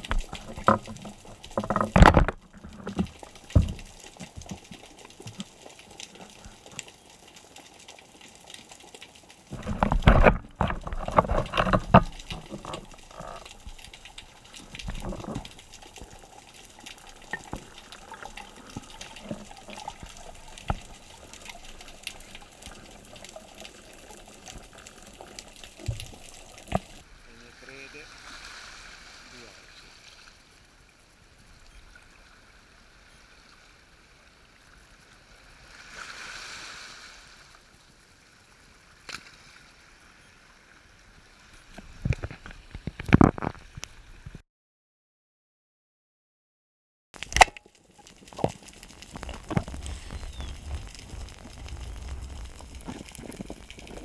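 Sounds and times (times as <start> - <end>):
underwater clicks and knocks: 0.0 - 5.5, 9.5 - 23.8, 24.5 - 27.0, 41.7 - 44.4, 47.2 - 54.0
muffled underwater bubbling: 9.5 - 27.0, 48.2 - 54.0.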